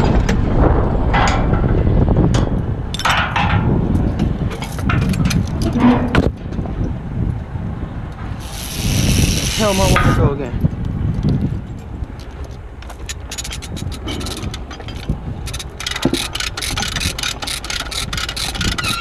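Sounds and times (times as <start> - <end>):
steady low rumble: 0.0 - 15.8
metal clanks and knocks: 1.1 - 6.6, 12.8 - 19.0.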